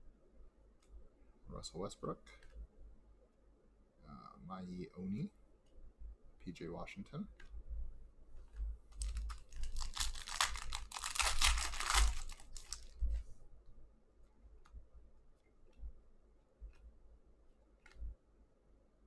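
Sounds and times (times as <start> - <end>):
foil pack tearing and crinkling: 9.0 - 13.0
faint ticks of cards handled: 16.6 - 17.0, 17.8 - 18.2.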